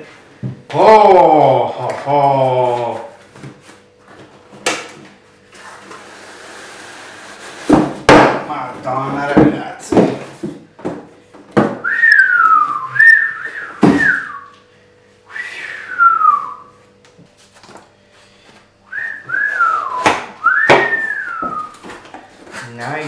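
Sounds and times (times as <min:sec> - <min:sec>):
knocks on cardboard box: 0:09.3 - 0:11.8
man whistling sliding notes: 0:11.8 - 0:14.6, 0:15.2 - 0:16.8, 0:18.8 - 0:21.8.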